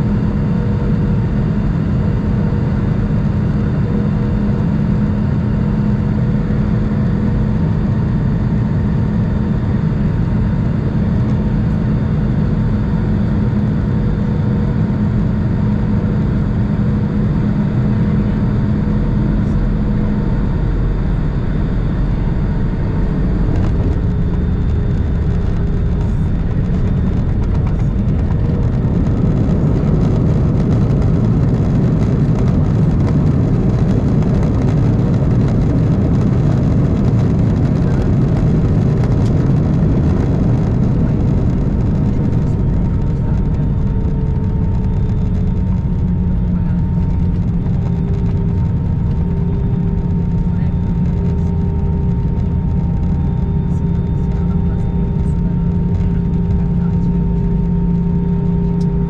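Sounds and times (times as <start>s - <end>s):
jet engine and airflow roar: 0.0s - 59.0s.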